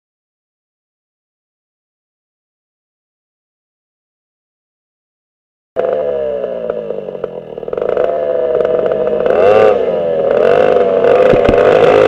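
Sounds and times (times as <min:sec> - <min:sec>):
two-stroke kart engines revving: 0:05.8 - 0:12.0.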